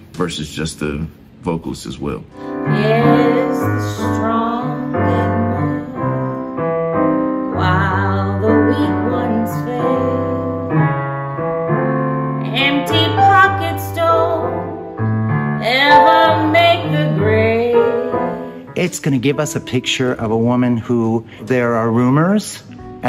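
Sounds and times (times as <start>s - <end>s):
piano accompaniment: 2.3s - 23.0s
woman singing jazz ballad: 2.5s - 11.1s, 12.4s - 15.0s, 15.6s - 18.8s.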